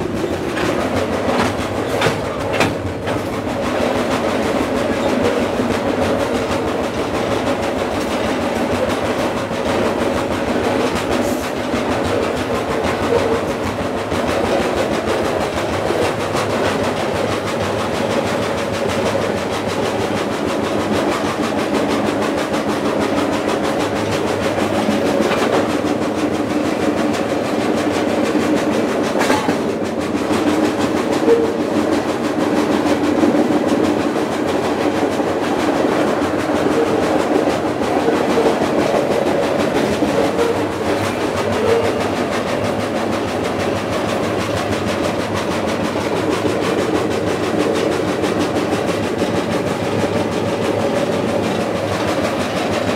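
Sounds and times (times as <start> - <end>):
steel wheels on rail: 0.0 - 52.9.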